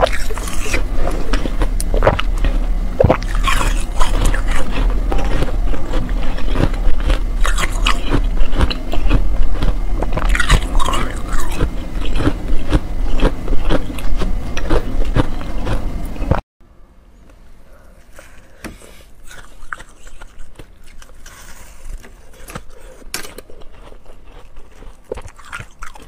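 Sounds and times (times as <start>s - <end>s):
crunching and chewing ice: 0.0s - 16.4s, 18.1s - 26.0s.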